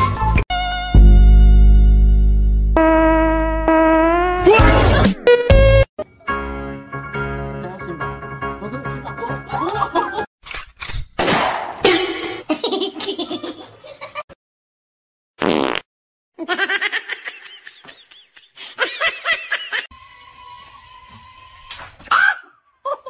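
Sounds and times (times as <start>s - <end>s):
people laughing: 9.2s - 10.3s, 12.5s - 14.3s, 16.4s - 19.9s.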